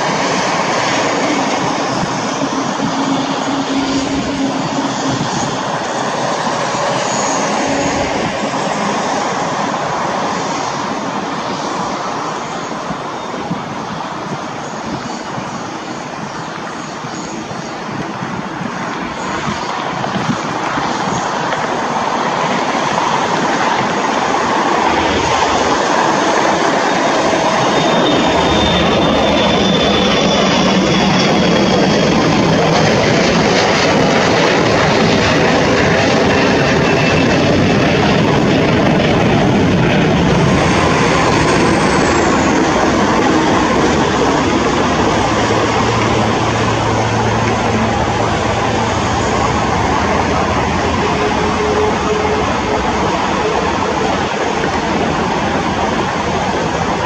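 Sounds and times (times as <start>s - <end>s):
jet engine roar: 0.0s - 57.0s
faint high whine: 24.1s - 54.8s.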